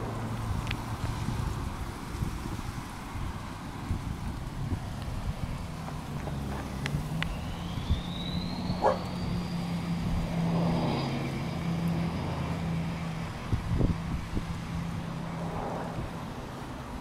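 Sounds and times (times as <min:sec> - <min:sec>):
vehicle engine humming: 0:00.0 - 0:17.0
wind on microphone: 0:00.0 - 0:17.0
faint high whine: 0:06.9 - 0:13.4
dog barking: 0:08.8 - 0:09.0.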